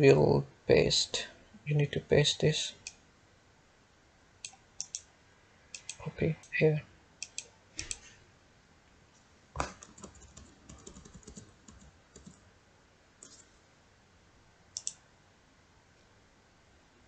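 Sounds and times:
mouse clicks: 4.4s - 5.1s, 5.8s - 6.0s, 7.2s - 8.1s, 14.7s - 15.0s
keyboard keystrokes: 9.6s - 12.4s.

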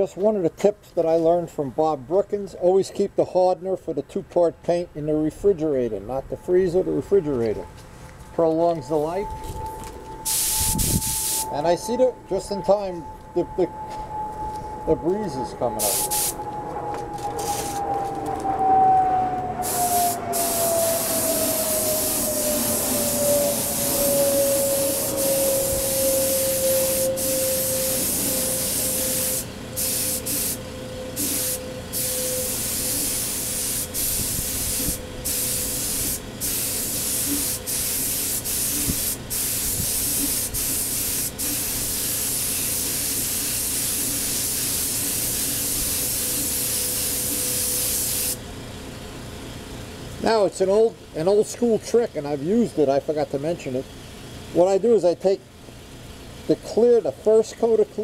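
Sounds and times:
steady tone sliding down: 6.1s - 29.2s
spray gun hissing: 10.3s - 11.5s, 15.8s - 16.4s, 19.6s - 30.6s, 31.2s - 48.4s.

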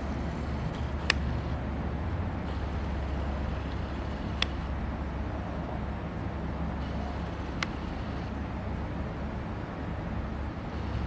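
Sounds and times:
low background rumble: 0.0s - 11.0s
sharp clicks: 3.6s - 4.7s, 7.5s - 7.8s.

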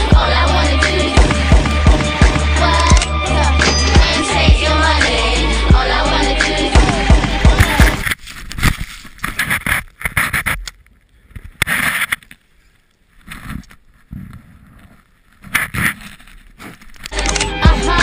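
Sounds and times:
music: 0.0s - 8.0s, 17.1s - 18.0s.

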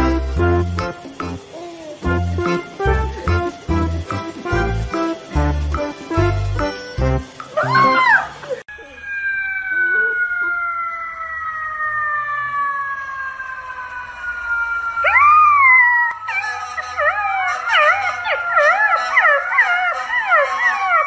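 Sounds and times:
puppy howling: 7.6s - 12.5s, 15.0s - 21.0s
puppy crying: 16.1s - 21.0s.

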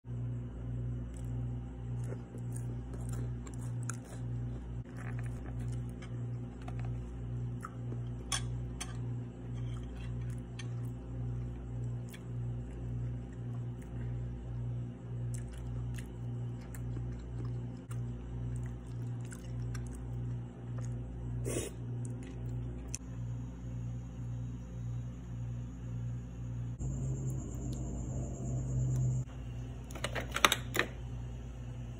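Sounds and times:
pulsing low hum: 0.0s - 29.9s
person chewing food: 1.0s - 23.0s.

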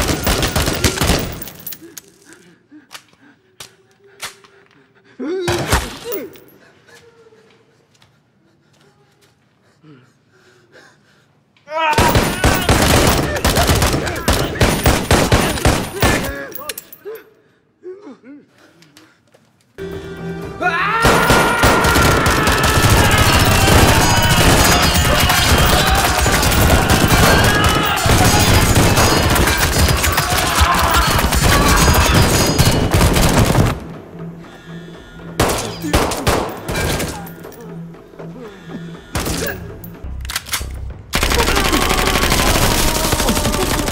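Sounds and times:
rapid gunfire: 0.0s - 1.5s, 12.0s - 16.3s, 21.0s - 33.9s, 35.4s - 37.1s, 41.2s - 43.9s
rapid handgun fire: 0.0s - 1.6s, 12.0s - 16.3s, 21.0s - 34.0s, 35.4s - 37.1s, 41.2s - 43.9s
person yelling: 11.7s - 14.6s, 20.6s - 32.3s, 41.5s - 43.9s
person crying out: 11.7s - 14.9s, 20.6s - 32.7s, 41.4s - 43.9s.

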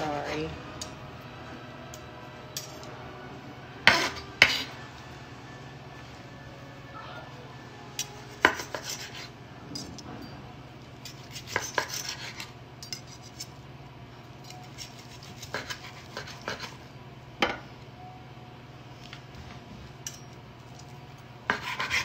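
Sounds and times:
knife and fork on cutting board: 8.0s - 10.0s, 11.0s - 13.6s, 14.4s - 16.8s, 21.5s - 22.0s.

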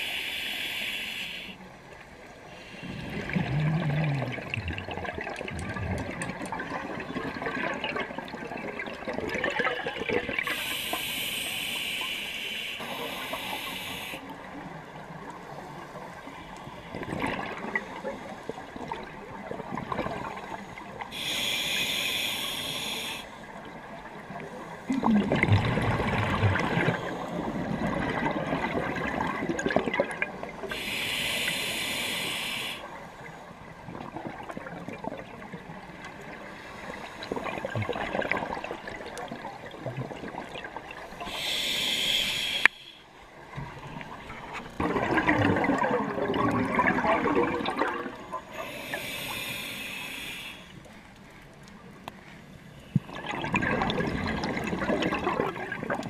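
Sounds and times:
regulator hiss: 0.0s - 1.6s, 10.5s - 14.2s, 21.2s - 23.3s, 30.7s - 32.9s, 41.2s - 43.1s, 48.6s - 50.8s
exhaled air bubbling: 2.8s - 12.0s, 24.9s - 32.8s, 37.0s - 42.8s, 43.6s - 50.3s, 52.9s - 56.0s.

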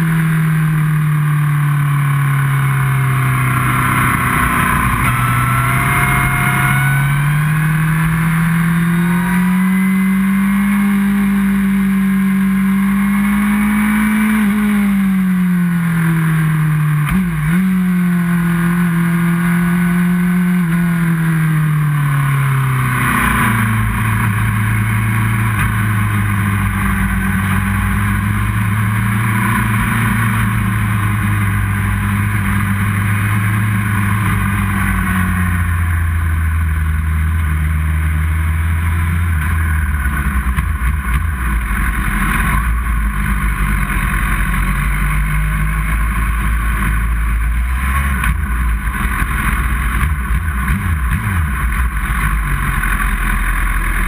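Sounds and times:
motorcycle engine: 0.0s - 54.0s.

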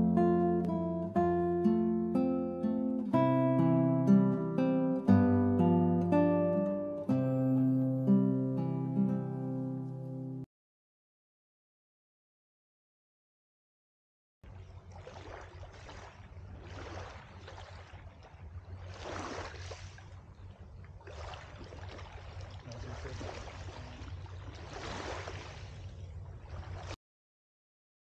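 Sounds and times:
small waves washing ashore: 14.5s - 27.0s.

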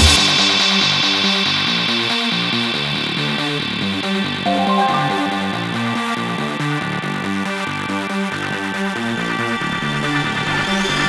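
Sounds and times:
electronic synth music: 4.5s - 7.1s.

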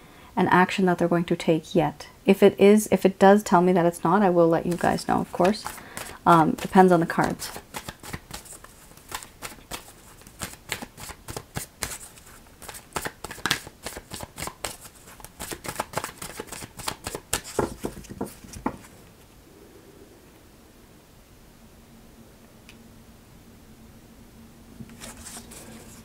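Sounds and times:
cards shuffling: 4.6s - 18.9s, 24.8s - 26.0s.

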